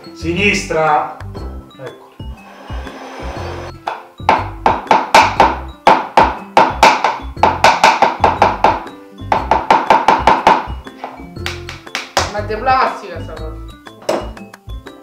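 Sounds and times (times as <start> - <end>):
bouncy background music: 0.0 - 15.0.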